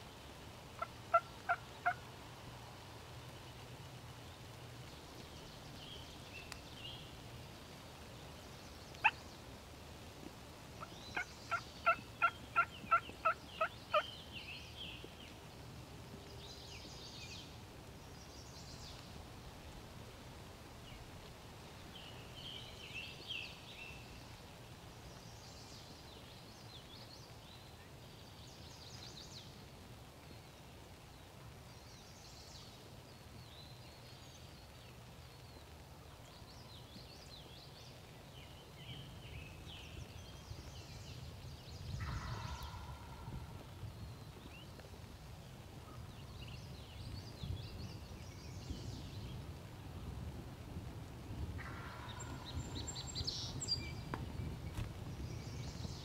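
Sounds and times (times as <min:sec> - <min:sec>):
turkey calling: 0:00.8 - 0:02.0, 0:10.8 - 0:14.0, 0:42.0 - 0:43.3, 0:51.6 - 0:52.5.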